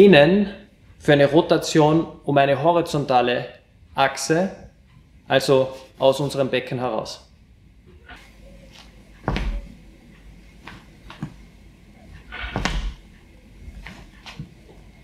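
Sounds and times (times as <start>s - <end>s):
light shoe taps and scuffs: 8.8s - 9.6s, 12.4s - 13.0s
heavy footstep thuds on wood: 9.2s - 9.7s, 12.4s - 13.1s.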